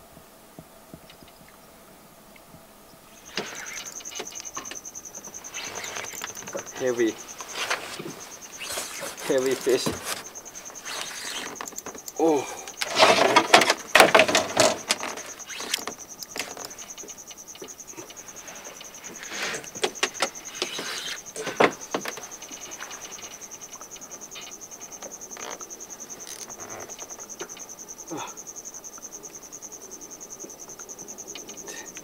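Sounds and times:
insect trilling: 2.6s - 32.0s
loud clicks and knocks: 12.8s - 16.8s.

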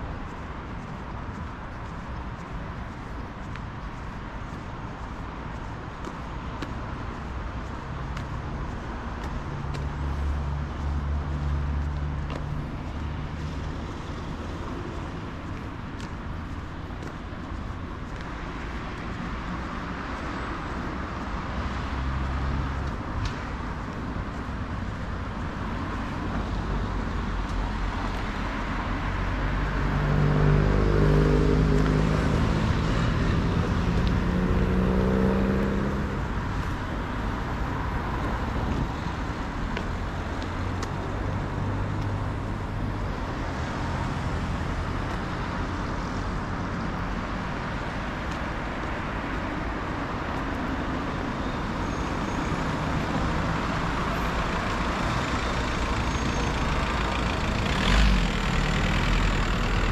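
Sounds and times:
street traffic: 0.0s - 59.9s
vehicle passing close by: 29.1s - 36.6s.

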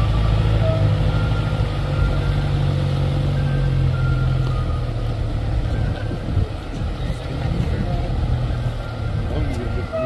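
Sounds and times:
heavy vehicle engine running: 0.0s - 10.0s.

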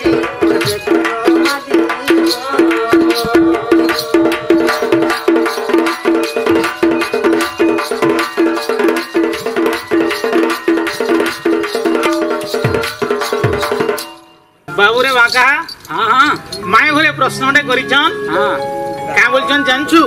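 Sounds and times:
person singing: 0.0s - 6.8s
drums beating: 0.0s - 16.8s.

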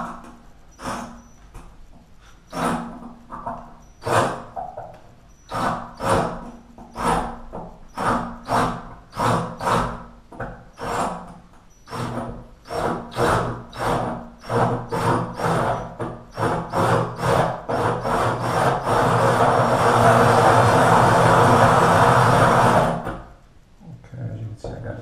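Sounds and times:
hole saw grinding tile: 0.0s - 1.6s, 2.3s - 4.6s, 5.3s - 23.3s.

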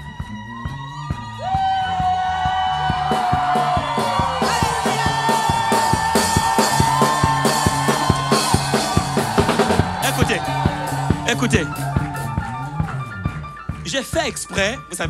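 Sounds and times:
congregation shouting and cheering: 0.0s - 14.2s
fast steady drum beat: 0.0s - 15.0s
live band music: 3.0s - 15.0s.

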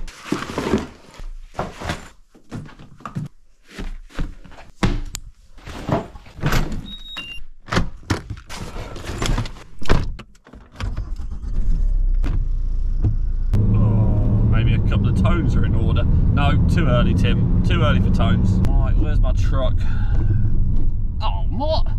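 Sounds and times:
clunks and knocks: 7.6s - 13.7s
car engine starting and running: 10.7s - 21.9s.

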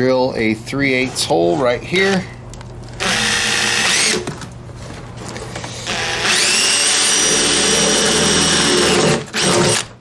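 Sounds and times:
cordless drill drilling metal: 3.0s - 4.3s, 5.6s - 9.9s.

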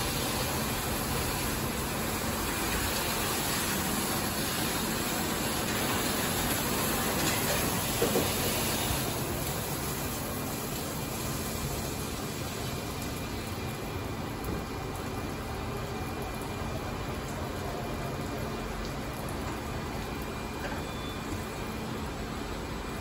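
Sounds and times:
high-pressure water spray hiss: 0.0s - 13.6s
car wash machine running: 0.0s - 23.0s.

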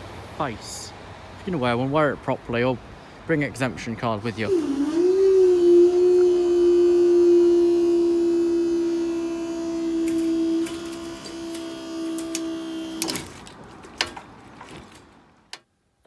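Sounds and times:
barrier motor humming: 4.2s - 14.1s.

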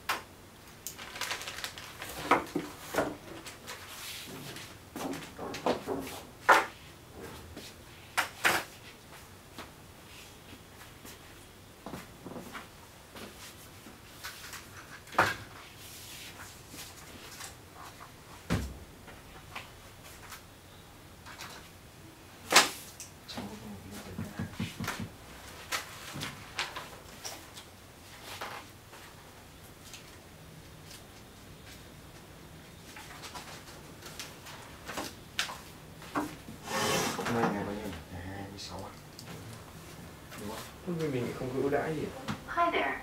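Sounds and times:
packaging and papers rustling: 0.8s - 4.8s, 32.8s - 35.7s.

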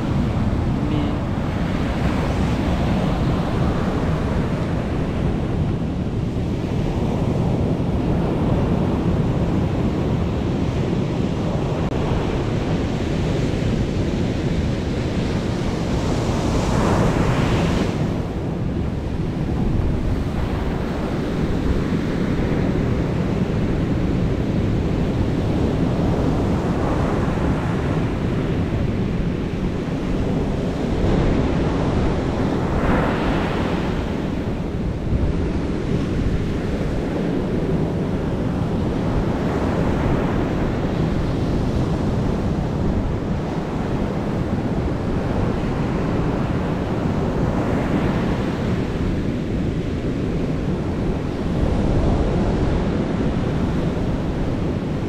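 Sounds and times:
ocean surf breaking: 0.0s - 6.0s, 30.8s - 49.2s
wind rumble on microphone: 0.0s - 55.0s.

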